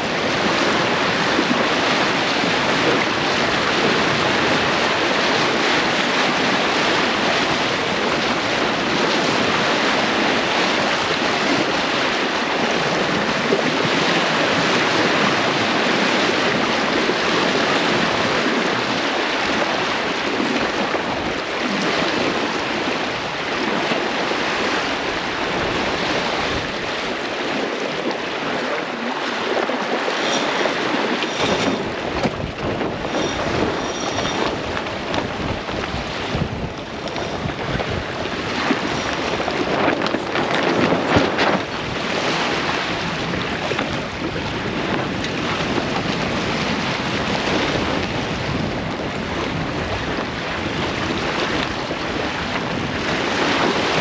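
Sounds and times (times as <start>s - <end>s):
water moving along hull: 0.0s - 54.0s
wind on microphone: 0.0s - 54.0s
faint high-pitched squeaks: 33.1s - 34.5s.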